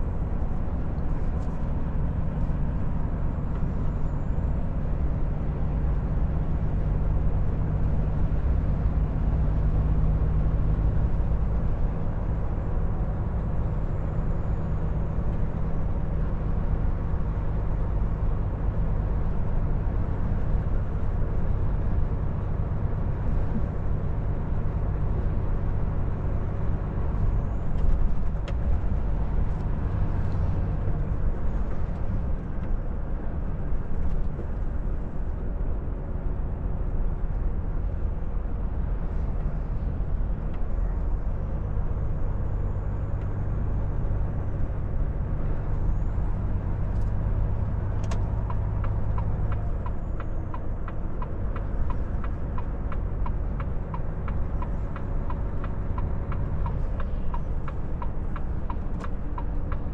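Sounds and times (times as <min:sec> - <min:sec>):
tyre and road noise: 0:00.0 - 0:59.9
truck diesel engine running: 0:34.7 - 0:59.9
turn signal ticking: 0:46.7 - 0:59.9.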